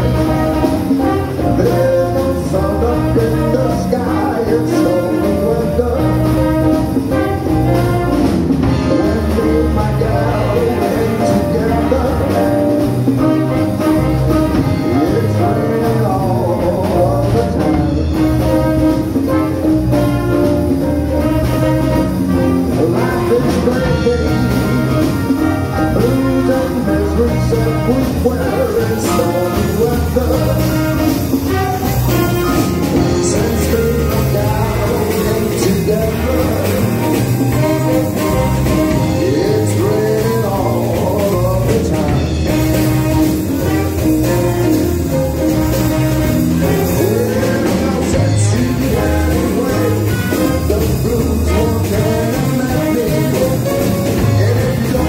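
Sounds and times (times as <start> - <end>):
drums: 0.0 - 55.0
guitar: 0.0 - 55.0
trombone: 0.0 - 55.0
trumpet: 0.0 - 55.0
saxophones: 17.5 - 55.0.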